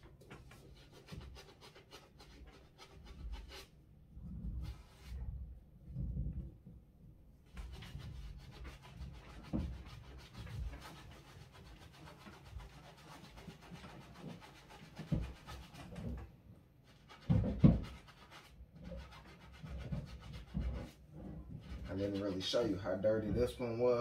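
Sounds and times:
brush scrubbing fabric: 0:07.5 - 0:16.3, 0:16.9 - 0:23.0.

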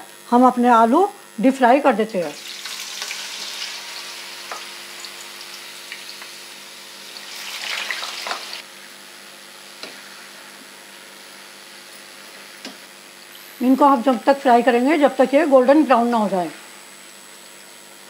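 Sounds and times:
potatoes sizzling in hot oil: 0:02.2 - 0:08.7.

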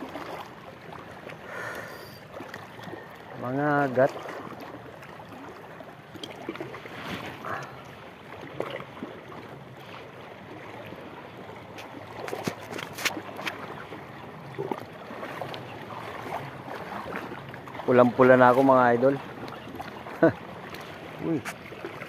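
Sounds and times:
seawater lapping around rocks: 0:00.0 - 0:22.0.

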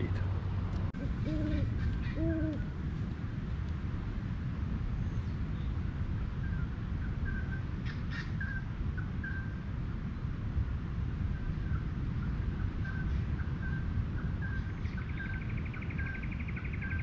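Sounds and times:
steady low rumble: 0:00.0 - 0:07.8
low bird hoot: 0:01.0 - 0:02.7.

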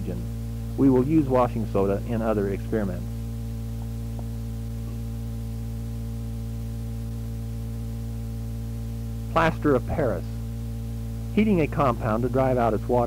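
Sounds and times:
electrical hum: 0:00.0 - 0:13.0.

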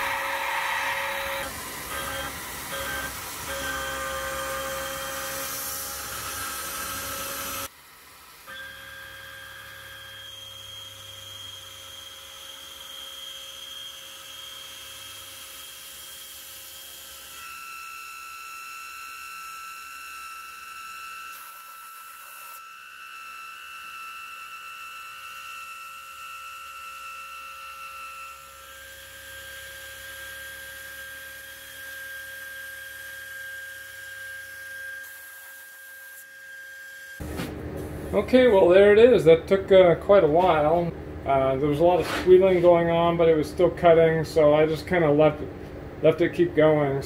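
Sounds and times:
mill cutting metal squealing: 0:00.0 - 0:07.7, 0:08.5 - 0:14.8.

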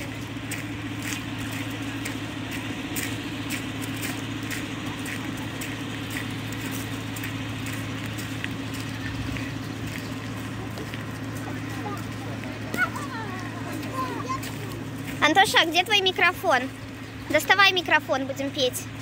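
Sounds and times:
footsteps crunching on gravel: 0:00.0 - 0:19.0
steady low hum: 0:00.0 - 0:19.0.

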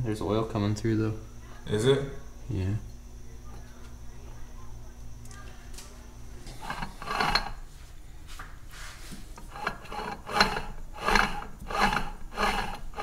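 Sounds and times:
pulley spinning with rasping whir: 0:06.5 - 0:07.6, 0:09.4 - 0:13.0.

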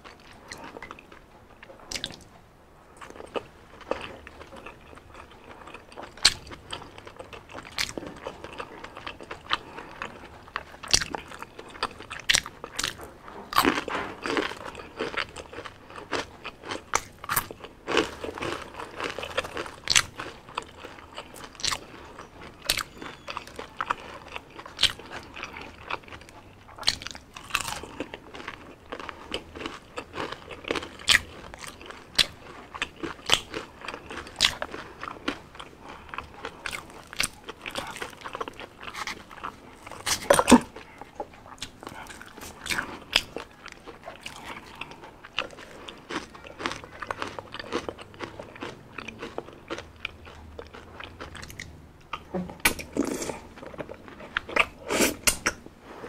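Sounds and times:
crunchy food chewing: 0:00.0 - 0:02.3, 0:03.0 - 0:56.0.

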